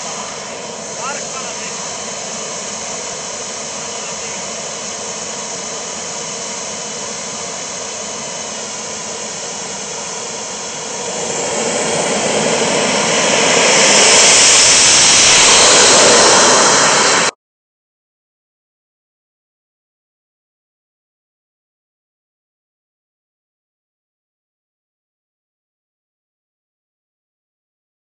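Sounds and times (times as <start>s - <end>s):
jet turbines whining: 0.0s - 17.4s.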